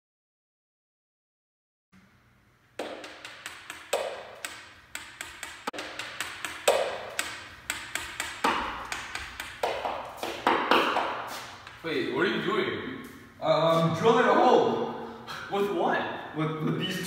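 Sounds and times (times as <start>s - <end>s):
hammer striking metal drill bit: 2.8s - 9.9s.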